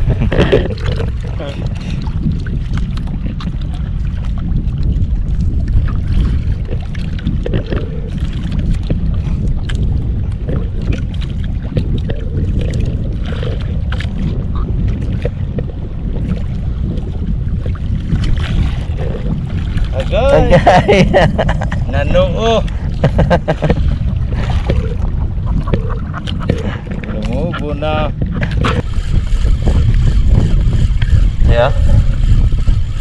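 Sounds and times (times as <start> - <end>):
water sloshing against boat: 0.0 - 33.0
wind buffeting microphone: 0.0 - 33.0.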